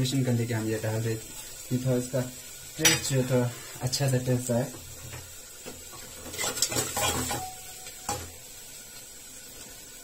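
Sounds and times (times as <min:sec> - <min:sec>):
metal ladle clinking on cookware: 0:06.4 - 0:08.2.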